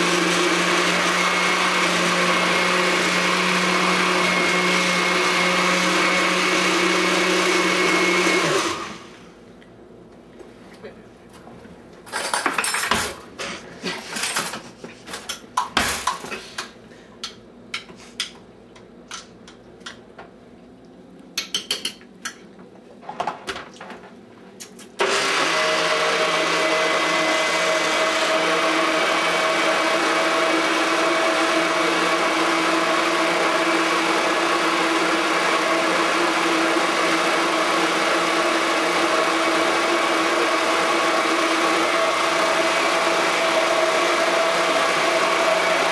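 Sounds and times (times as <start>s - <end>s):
electric blender running: 0.0s - 9.2s, 25.0s - 45.9s
utensils and dishes clinking: 12.1s - 13.2s.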